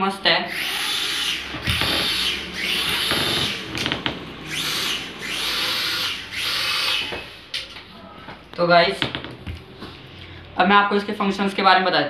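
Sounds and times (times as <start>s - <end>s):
quadcopter propellers whirring: 0.5s - 7.5s.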